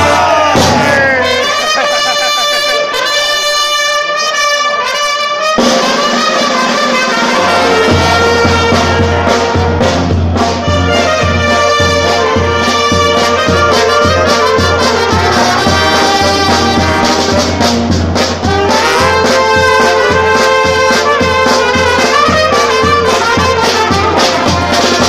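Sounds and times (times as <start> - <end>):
bass drum beat: 0.0 - 1.3, 7.4 - 25.0
saxophones and brass horns: 0.0 - 25.0.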